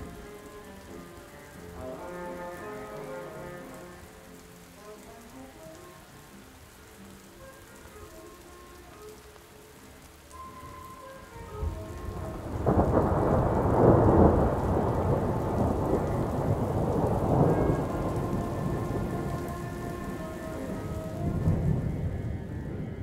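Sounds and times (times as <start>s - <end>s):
steady rain: 0.0s - 23.0s
thunder clap and rumble: 11.6s - 23.0s.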